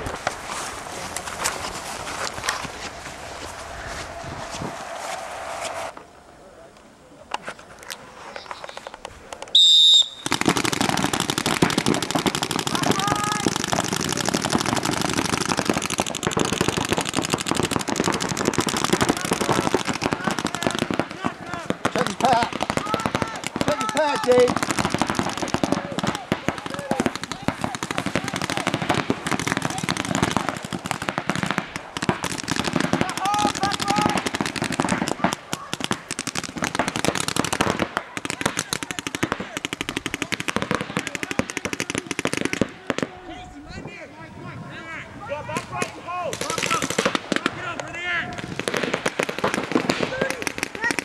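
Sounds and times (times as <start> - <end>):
paintball markers firing: 8.7 - 43.1.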